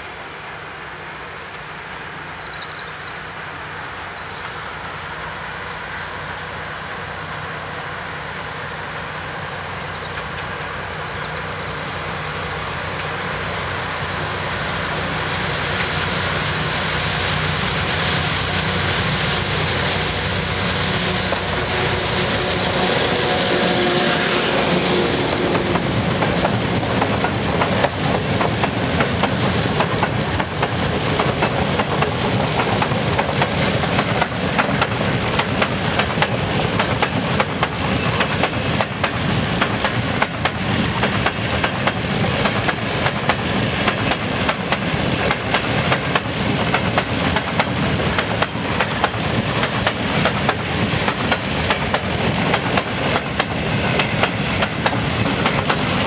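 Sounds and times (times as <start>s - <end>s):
diesel locomotive engine: 0.0s - 56.0s
wagon wheels clicking over rails: 25.6s - 56.0s.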